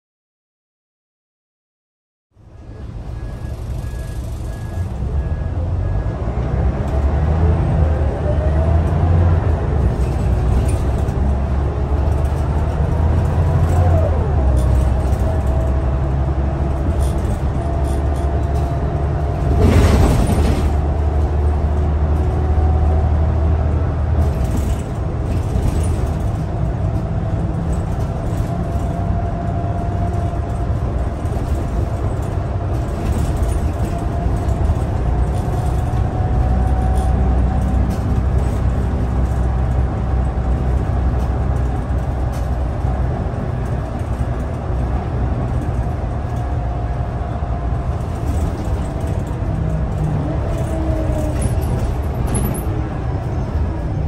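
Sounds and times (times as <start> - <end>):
bus engine rumble: 2.3 - 54.0
gearbox whine: 2.5 - 7.0.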